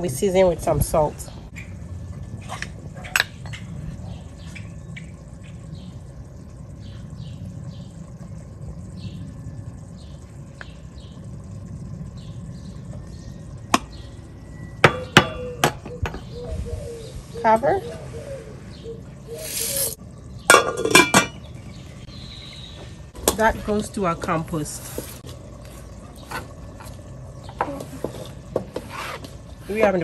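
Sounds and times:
outdoor background noise: 0.0 - 30.0
faint chirping: 3.5 - 20.5, 21.3 - 23.2.

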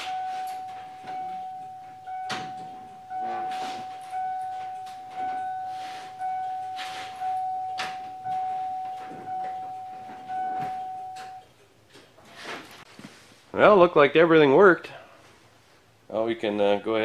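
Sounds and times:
truck warning chime dinging: 0.0 - 11.6.

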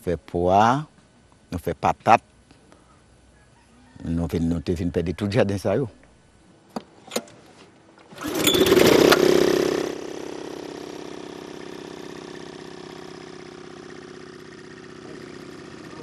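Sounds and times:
small engine starting and running: 8.1 - 16.0.

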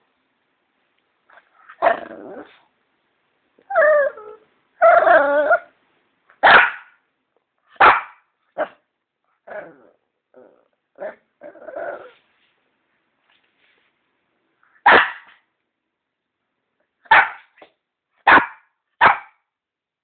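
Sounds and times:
dog barking: 6.4 - 7.0, 7.7 - 8.8, 14.8 - 15.4, 17.1 - 17.6, 18.2 - 19.4.

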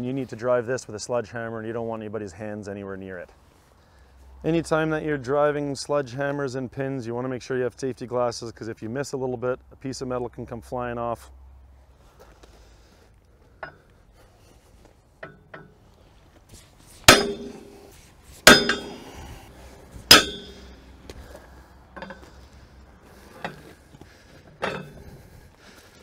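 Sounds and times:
sledgehammer ringing metal blows: 17.1 - 17.8, 18.4 - 19.2, 20.0 - 20.9.

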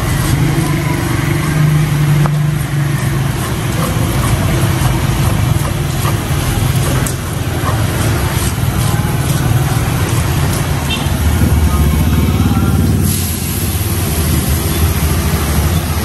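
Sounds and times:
stone pestle grinding: 0.0 - 11.7
traffic engine hum: 0.0 - 16.0.

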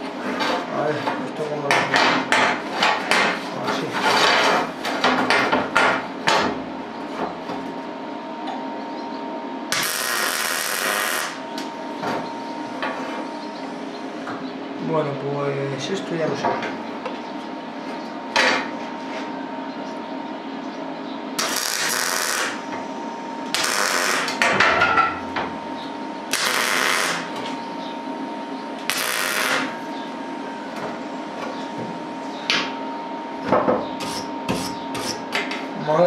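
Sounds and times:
steady hum: 0.0 - 36.0
welder arc crackling: 9.7 - 11.4, 21.4 - 22.6, 23.5 - 24.4, 26.3 - 27.3, 28.9 - 29.7.

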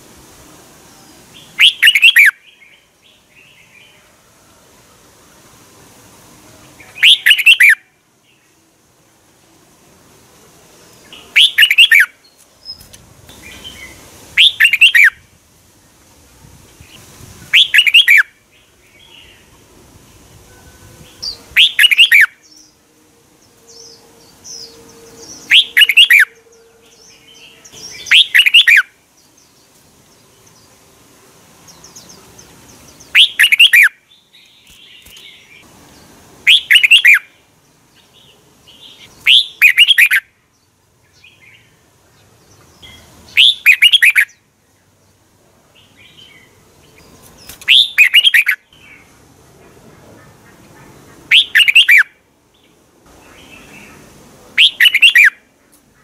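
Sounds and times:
bird song phrases: 0.9 - 4.4, 6.6 - 8.7, 10.9 - 15.2, 16.8 - 49.2, 49.9 - 56.0
faint bird chirps: 1.4 - 4.1, 6.8 - 8.6, 11.0 - 15.2, 20.4 - 22.8, 23.4 - 29.8, 31.7 - 35.7, 41.1 - 44.4, 45.8 - 49.1, 50.2 - 52.1, 53.2 - 56.0.

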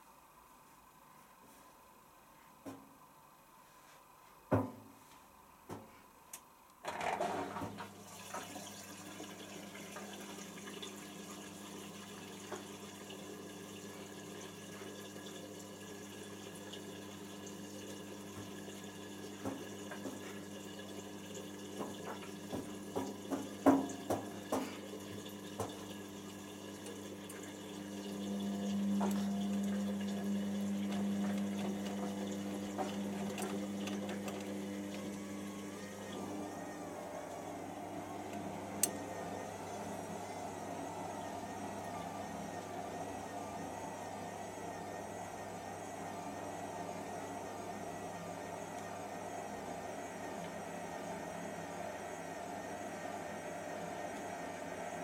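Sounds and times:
water rushing into washing machine: 6.8 - 55.0
washing machine drum turning: 21.7 - 25.9.

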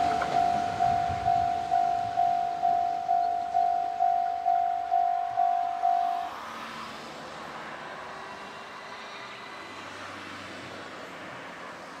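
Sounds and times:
distant freight train rumble: 0.0 - 6.5.

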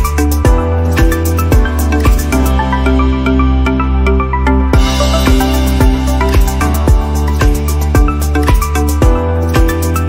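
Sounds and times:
music with steady beat: 0.0 - 10.0.

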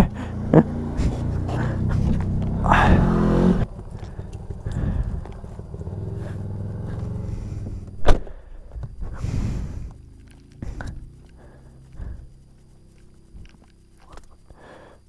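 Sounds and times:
car engine running: 0.0 - 14.6.

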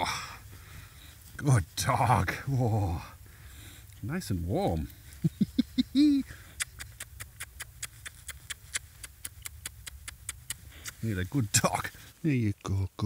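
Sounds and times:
wet smacking clicks: 6.5 - 11.0.

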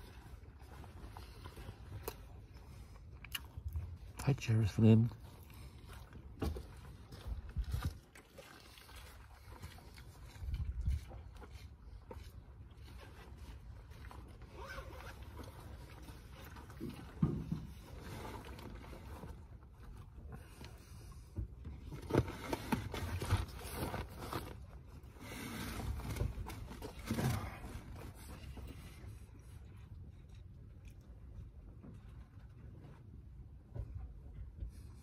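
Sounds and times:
wind rumbling on microphone: 7.2 - 8.1, 10.2 - 11.4.

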